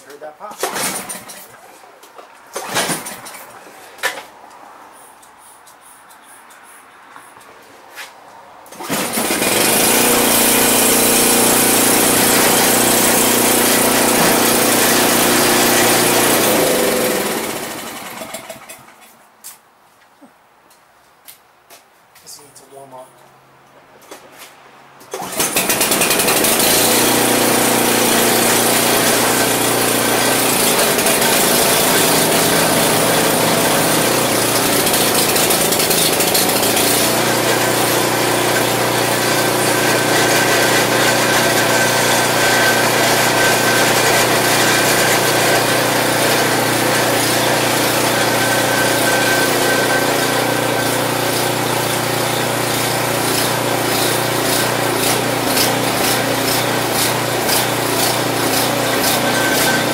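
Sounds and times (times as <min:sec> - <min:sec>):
snow blower engine running: 0:00.5 - 0:01.5, 0:08.7 - 0:18.9, 0:25.1 - 0:59.9
recoil starter pull: 0:00.5 - 0:01.6, 0:02.5 - 0:04.2, 0:08.7 - 0:18.9, 0:25.1 - 0:59.9.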